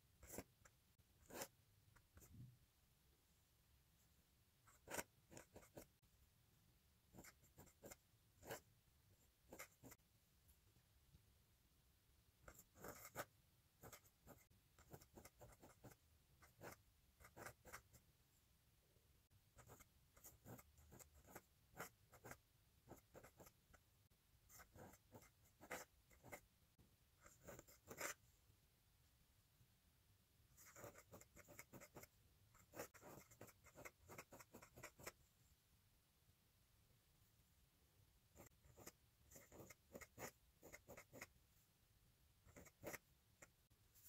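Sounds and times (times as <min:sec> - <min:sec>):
pen nib scratching on paper: 0:00.2 - 0:02.5, 0:04.6 - 0:06.0, 0:07.1 - 0:08.7, 0:09.4 - 0:10.0, 0:12.4 - 0:18.0, 0:19.5 - 0:23.8, 0:24.5 - 0:26.5, 0:27.2 - 0:28.2, 0:30.5 - 0:35.2, 0:38.3 - 0:41.4, 0:42.4 - 0:44.0.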